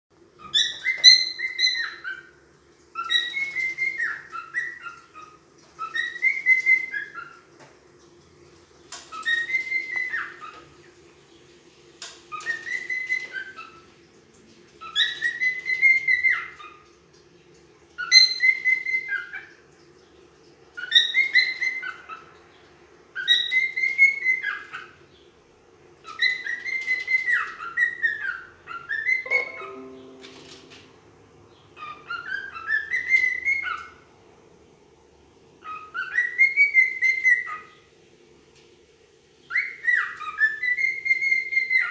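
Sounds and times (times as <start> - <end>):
cockatiel whistling: 0.5 - 2.3, 12.3 - 13.7, 26.1 - 30.9.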